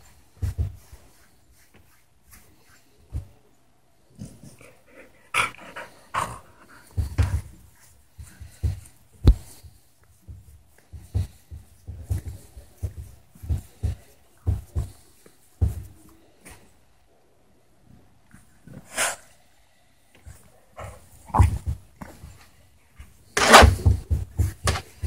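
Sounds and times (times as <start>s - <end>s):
dog breathy noises: 4.2s - 9.7s.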